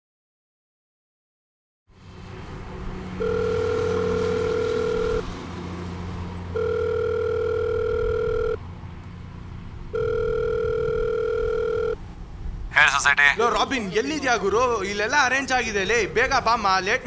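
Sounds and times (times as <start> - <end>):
telephone ringback tone: 3.2 - 5.3, 6.5 - 8.6, 9.9 - 12.0
low steady hum: 6.3 - 12.7.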